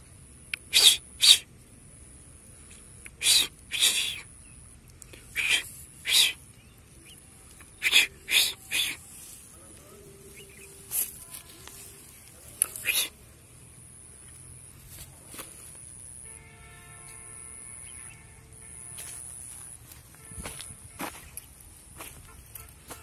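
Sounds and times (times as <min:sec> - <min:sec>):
person hissing psst: 0:00.6 - 0:01.5, 0:03.1 - 0:04.3, 0:05.1 - 0:06.4, 0:07.6 - 0:09.6, 0:12.4 - 0:13.3.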